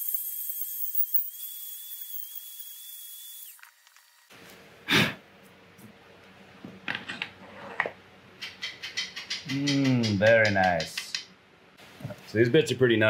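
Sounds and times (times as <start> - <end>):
die grinder whining: 0.0 - 4.3.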